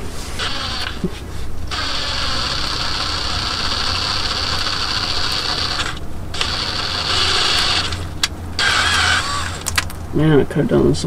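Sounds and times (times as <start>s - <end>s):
power tool driving a fastener: 0.4s - 1.1s, 1.7s - 9.9s.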